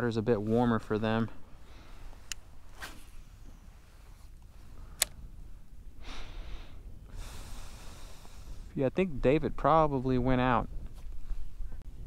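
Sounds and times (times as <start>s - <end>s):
wind rumble on microphone: 2.2s - 12.0s
sharp click: 5.0s - 5.2s
soft breathy hisses: 6.0s - 8.8s.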